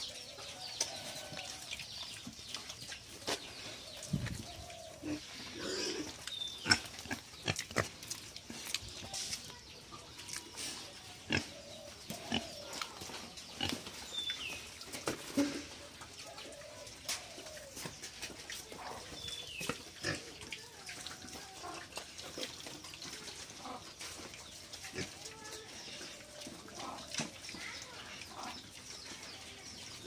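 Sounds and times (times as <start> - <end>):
pigs grunting: 4.7 - 8.7, 11.2 - 13.0.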